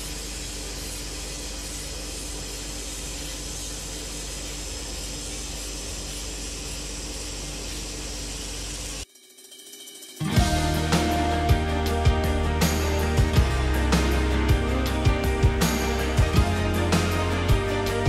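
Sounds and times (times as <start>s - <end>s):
laser cleaning hiss: 0.0s - 9.0s.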